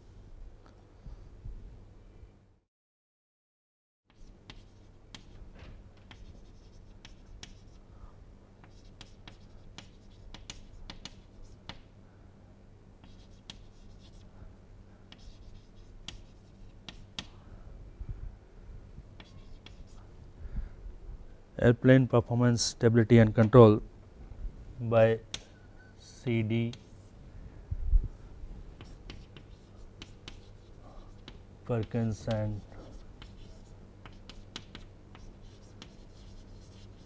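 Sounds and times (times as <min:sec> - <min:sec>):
low steady hum: 0:00.0 - 0:02.6, 0:04.2 - 0:37.0
chalk tapping and scratching: 0:04.1 - 0:07.8, 0:08.6 - 0:11.9, 0:13.0 - 0:14.3, 0:15.1 - 0:17.4, 0:19.2 - 0:20.0, 0:26.7 - 0:27.1, 0:28.8 - 0:37.0.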